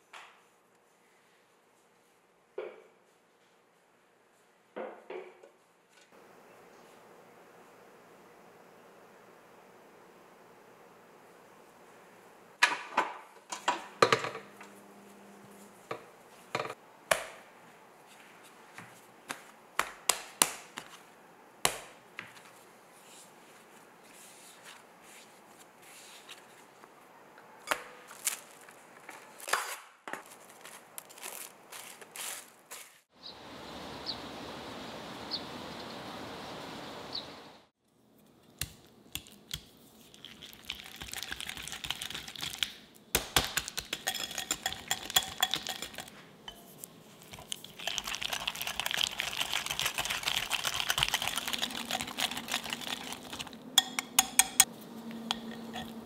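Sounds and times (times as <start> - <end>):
whisk clinking against glass bowl: 43.7 - 46.7, 47.8 - 54.7, 55.3 - 56.0.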